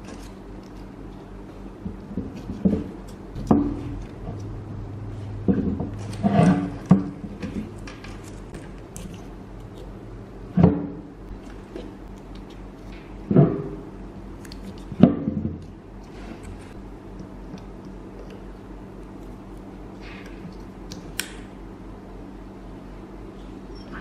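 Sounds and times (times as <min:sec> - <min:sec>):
low steady hum: 0:00.0 - 0:24.0
knocks and scrapes on metal: 0:05.4 - 0:08.5.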